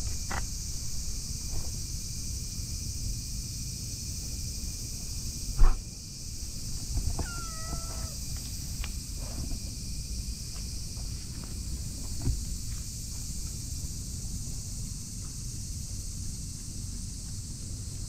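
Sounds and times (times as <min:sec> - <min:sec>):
cat meowing: 0:07.1 - 0:08.2.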